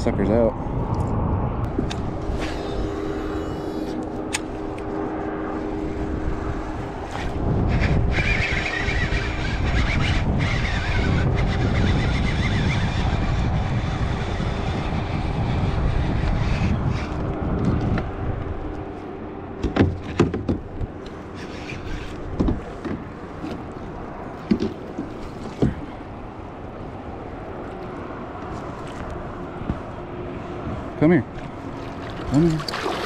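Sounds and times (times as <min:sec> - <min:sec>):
wind and water rumble: 0:00.0 - 0:33.0
water splashes: 0:31.6 - 0:33.0.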